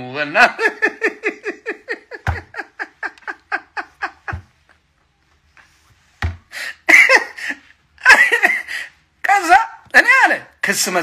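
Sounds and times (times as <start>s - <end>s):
man laughing: 0.4s - 4.8s, 6.7s - 8.8s.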